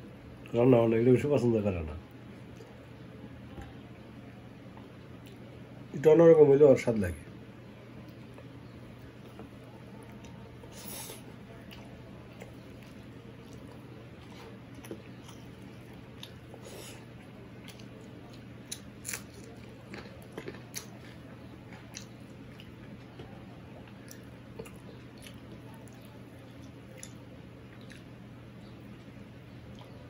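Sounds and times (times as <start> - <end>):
steady low hum: 0.0 - 30.0
chewing and lip smacks: 4.7 - 5.6, 8.0 - 30.0.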